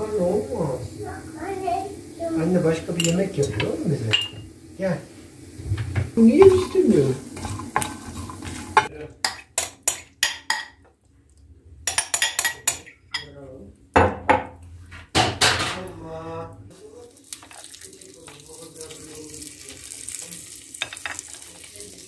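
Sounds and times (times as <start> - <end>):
fork clinking and scraping plate: 11.9 - 13.3.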